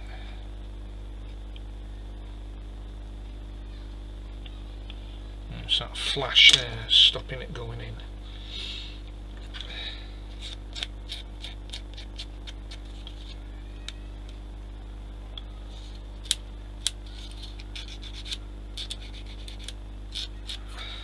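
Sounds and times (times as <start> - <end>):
plastic parts scratching and scraping: 10.3 - 13.4, 15.8 - 20.6.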